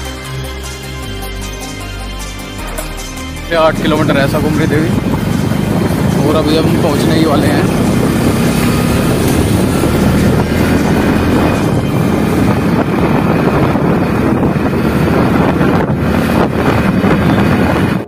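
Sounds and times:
motorcycle engine running: 0:00.0 - 0:18.0
tyres on road: 0:00.0 - 0:18.0
wind buffeting microphone: 0:03.6 - 0:18.0.

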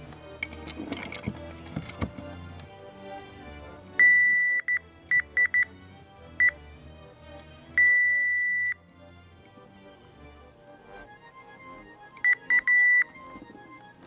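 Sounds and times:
quiet background music: 0:00.0 - 0:14.0
multimeter beeping: 0:04.0 - 0:05.7, 0:07.8 - 0:08.8, 0:12.2 - 0:13.1.

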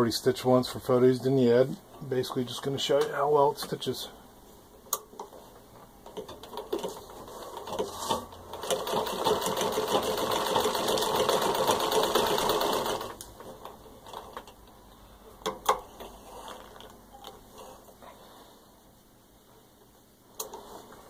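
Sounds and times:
sewing machine needle clatter: 0:08.5 - 0:13.2.

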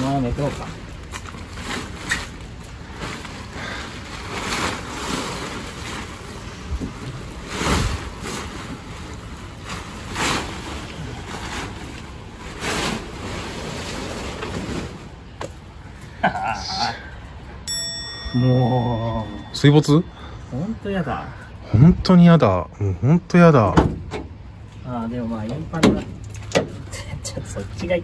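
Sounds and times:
plastic tarp crinkling and rustling: 0:00.0 - 0:15.7.

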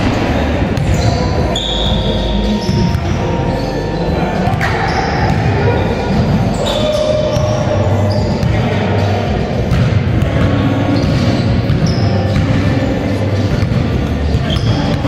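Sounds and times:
sneakers squeaking on court: 0:00.7 - 0:08.8, 0:09.7 - 0:15.0
basketball bouncing: 0:09.6 - 0:12.8, 0:13.5 - 0:15.0.

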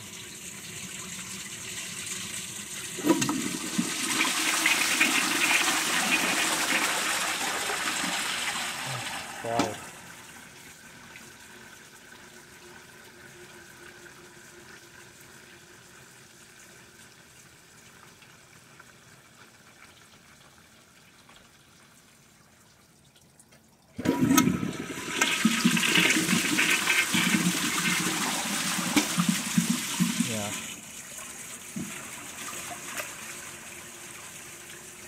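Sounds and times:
toilet flush water rushing: 0:00.0 - 0:15.8, 0:24.0 - 0:35.0
faint water hiss: 0:07.5 - 0:23.7.

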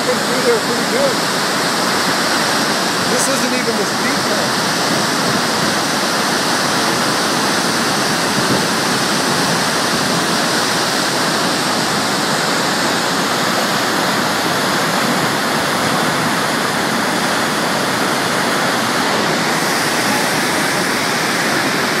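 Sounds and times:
water rushing down spillway: 0:00.0 - 0:22.0.

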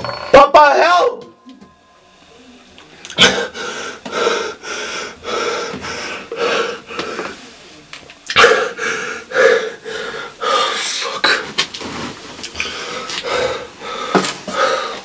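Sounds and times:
man shouting curse: 0:00.4 - 0:01.2
gasping wheezing breaths: 0:12.6 - 0:15.0.

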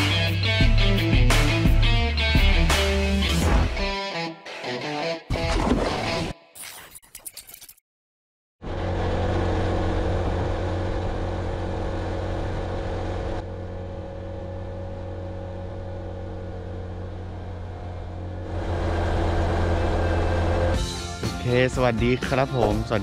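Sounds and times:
motorcycle engine running: 0:08.6 - 0:21.0.

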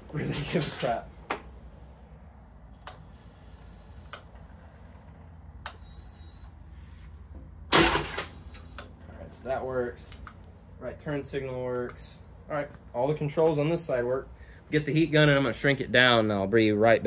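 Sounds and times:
low hum: 0:00.0 - 0:16.9
faint high whine: 0:01.7 - 0:07.2.

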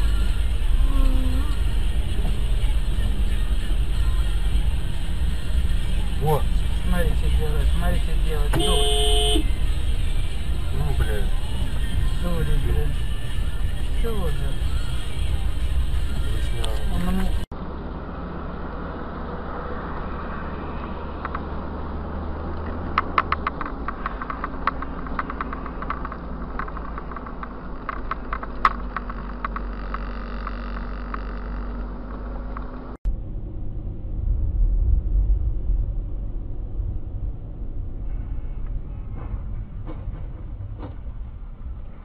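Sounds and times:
car engine and road rumble: 0:00.0 - 0:42.0
sharp clicks and knocks: 0:22.5 - 0:33.0.

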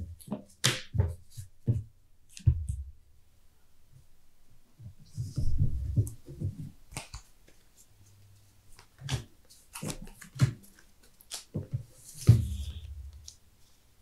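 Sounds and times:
cards tapping and clicking: 0:08.8 - 0:13.4.

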